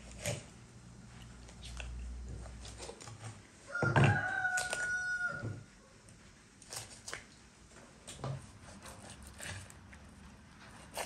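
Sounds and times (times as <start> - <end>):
rooster crowing: 3.7 - 5.7
knife cutting on wooden board: 10.7 - 11.0.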